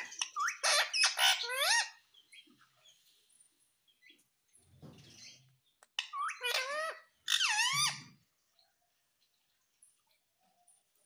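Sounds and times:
parakeet squawking calls: 0.0 - 2.0, 6.0 - 8.2.

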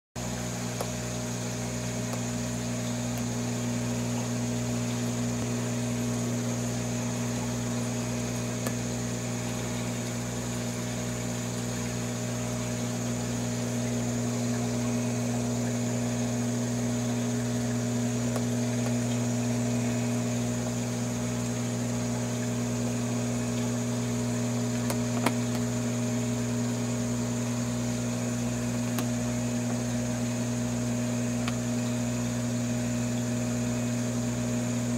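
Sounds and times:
aquarium pump humming: 0.2 - 34.9
small click: 0.7 - 1.0, 2.1 - 3.3, 8.6 - 8.8, 24.8 - 25.7, 28.8 - 29.8, 31.4 - 32.0.

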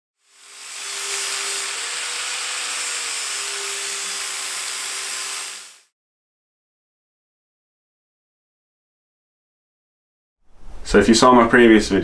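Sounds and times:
angle grinder grinding steel: 0.2 - 5.9.

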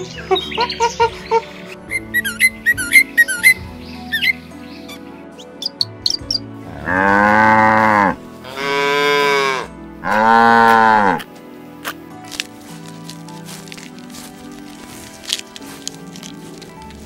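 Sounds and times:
cattle mooing: 6.7 - 11.2.

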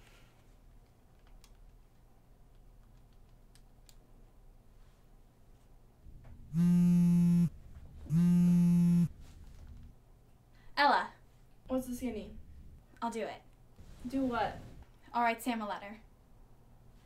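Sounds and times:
phone buzzing tones: 6.5 - 9.2.

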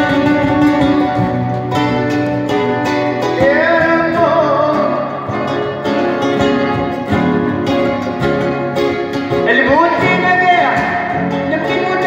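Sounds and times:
acoustic guitars playing: 0.0 - 12.0
man singing: 3.0 - 6.7, 9.3 - 12.0.

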